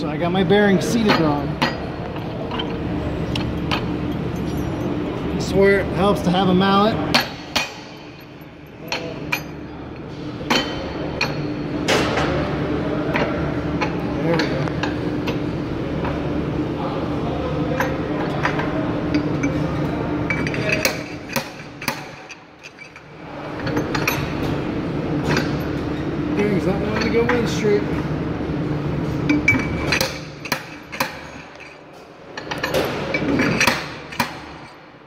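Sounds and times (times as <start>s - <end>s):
steady hum: 0.0s - 35.0s
metallic clinks and knocks: 2.4s - 5.0s.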